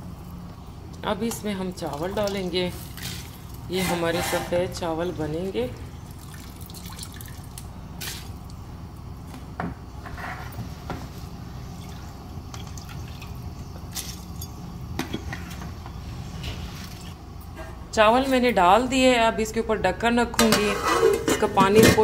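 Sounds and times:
low steady hum: 0.0 - 22.0
water splashing and dripping: 1.8 - 3.6, 6.1 - 8.6.

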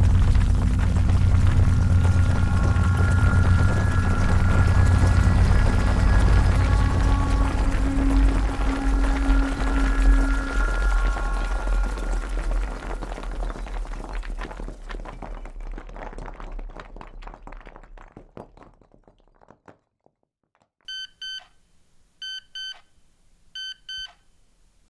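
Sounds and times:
dense crackling noise: 0.0 - 19.6
electronic alarm double beeps: 20.9 - 21.5, 22.2 - 22.9, 23.6 - 24.2.

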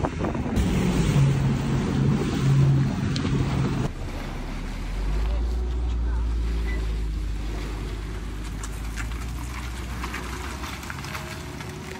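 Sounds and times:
wind on microphone: 0.0 - 3.9
vehicle engine rumble: 0.0 - 11.9.

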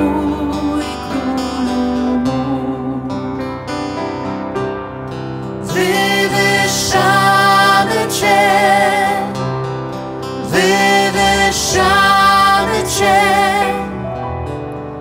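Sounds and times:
women singing: 0.0 - 3.1, 5.7 - 9.5, 10.4 - 14.0
piano accompaniment: 0.0 - 15.0.

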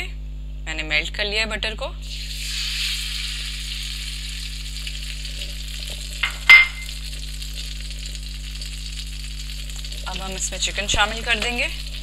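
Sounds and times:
butter sizzling in a wok: 2.0 - 12.0
glass bowl clinking: 6.2 - 7.0.

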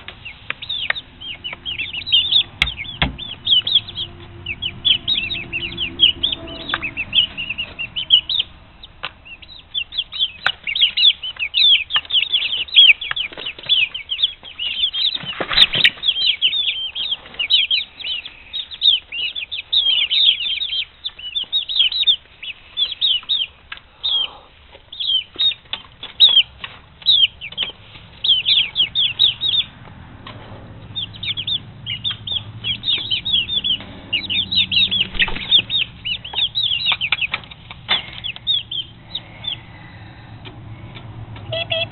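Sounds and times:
chicks peeping: 0.0 - 41.9
wings flapping: 34.7 - 38.3.

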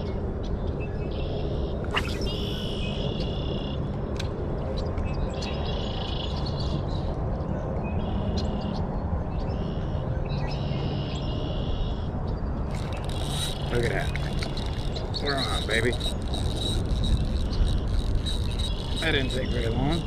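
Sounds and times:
outdoor background noise: 0.0 - 20.0
fishing rod swish: 1.9 - 2.6.

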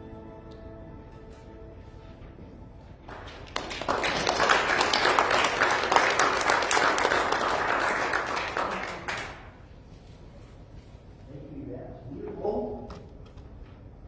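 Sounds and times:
crowd applauding: 3.1 - 9.7.

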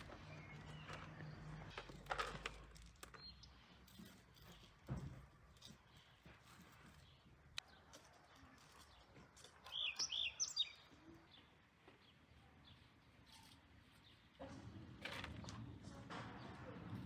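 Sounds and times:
faint yard background: 0.0 - 17.0
small bird chirping: 5.9 - 14.2.

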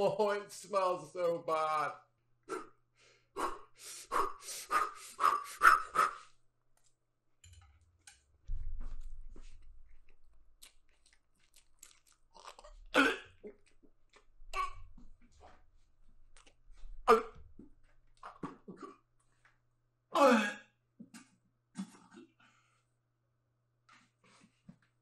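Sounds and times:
man gagging and retching: 11.8 - 13.7, 14.5 - 14.9, 17.0 - 17.4, 18.2 - 19.1, 20.2 - 22.4
man coughing: 12.9 - 13.4, 20.2 - 20.7.

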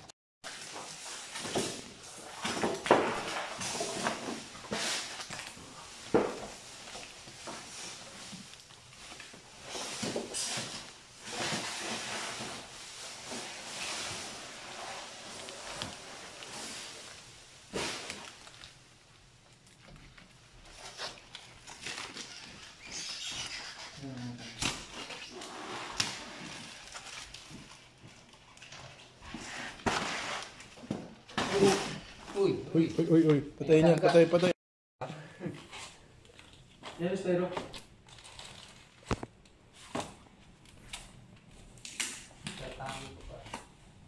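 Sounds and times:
plastic sheeting rustling: 0.4 - 19.6.

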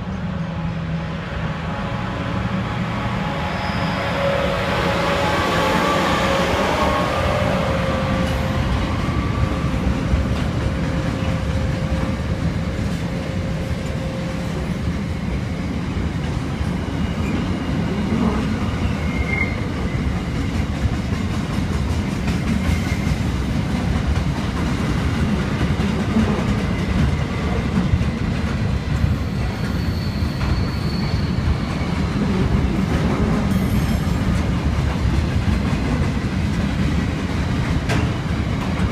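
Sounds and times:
diesel locomotive engine: 0.0 - 38.9
faint wheel squeals: 3.4 - 4.4, 29.2 - 31.9
train wheels clattering on rail: 4.8 - 38.9.

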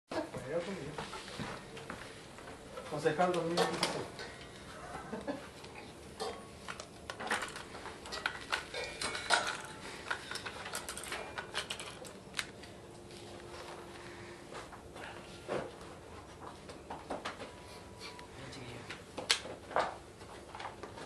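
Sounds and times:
trophies clicking on a pool table: 6.2 - 12.6.

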